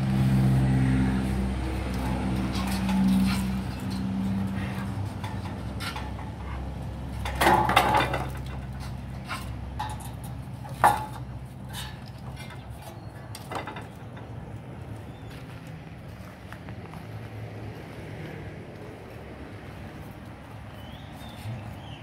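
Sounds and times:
metal pipes clinking and knocking: 1.9s - 14.3s.

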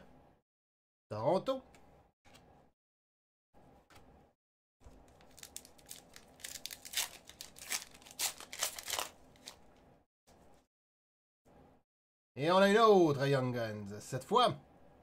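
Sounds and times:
foil wrapper crinkling and tearing: 5.1s - 9.7s.

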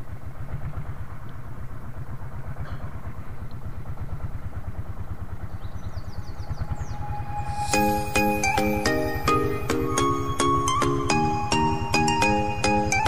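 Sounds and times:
small boat engine puttering: 0.0s - 7.4s.

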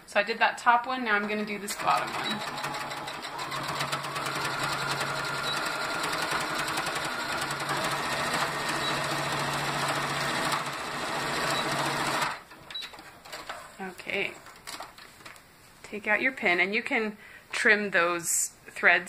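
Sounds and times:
sewing machine stitching: 1.2s - 13.5s.

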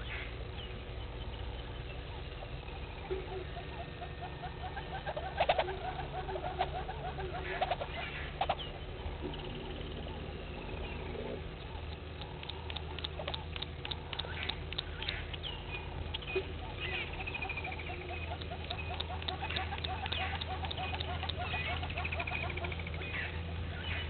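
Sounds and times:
birds chirping: 0.0s - 24.0s
low held bird notes: 0.0s - 24.0s
sharp clicks: 11.6s - 16.4s, 17.3s - 21.9s.

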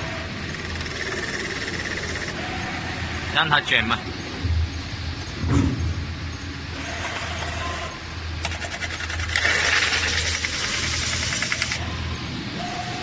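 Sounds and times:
tool scraping spinning metal: 0.0s - 2.7s, 8.4s - 11.8s
motor hum: 0.0s - 3.4s, 4.0s - 13.0s
rapid rattling: 0.4s - 2.4s, 8.5s - 11.8s.

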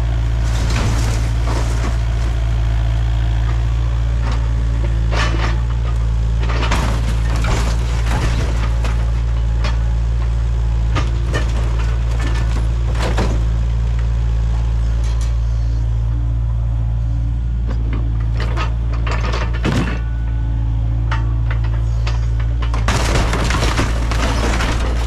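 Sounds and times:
excavator diesel engine running: 0.0s - 25.0s
sharp knocks and cracks: 3.3s - 14.1s, 17.7s - 20.2s, 21.1s - 25.0s.

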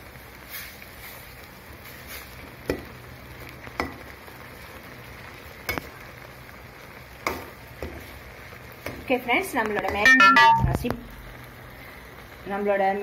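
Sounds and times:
noodles simmering with hiss: 0.0s - 10.1s, 10.7s - 13.0s
metal ladle knocking on pan: 9.8s - 10.8s.

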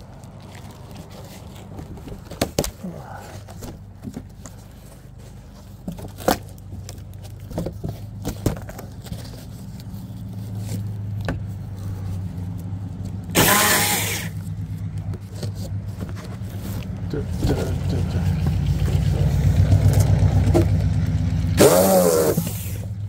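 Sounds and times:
engine humming: 0.0s - 23.0s
loud hiss: 13.4s - 14.4s.

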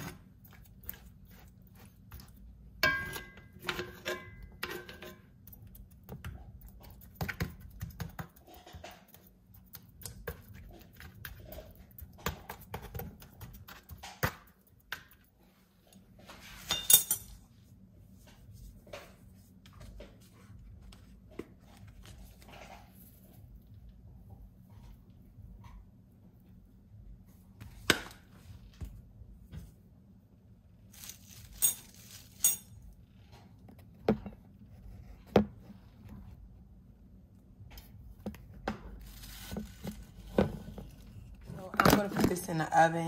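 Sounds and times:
metal spoon tapping in a skillet: 2.8s - 4.9s.

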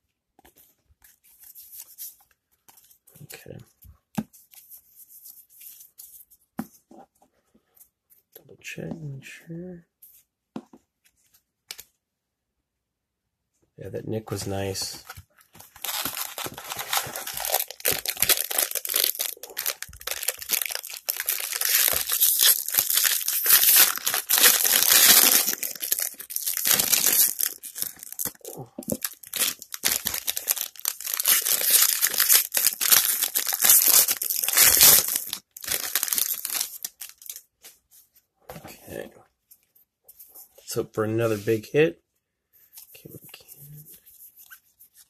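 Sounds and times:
wrappers tearing and crinkling: 15.7s - 37.4s.

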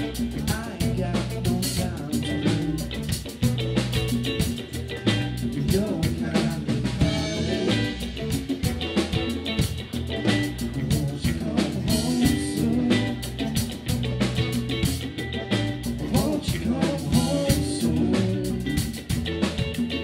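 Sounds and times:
man singing: 0.0s - 3.2s, 5.4s - 8.4s, 10.5s - 14.1s, 15.9s - 19.2s
drum kit beat: 0.0s - 20.0s
electric guitar: 0.0s - 20.0s.

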